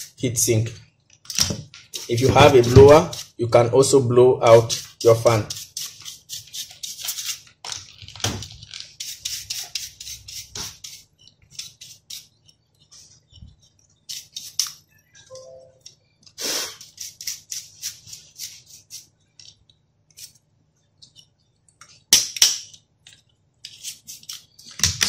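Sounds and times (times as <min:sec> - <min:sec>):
brush scrape: 0:01.9 - 0:03.4, 0:04.4 - 0:07.5, 0:08.9 - 0:14.7, 0:16.4 - 0:19.2.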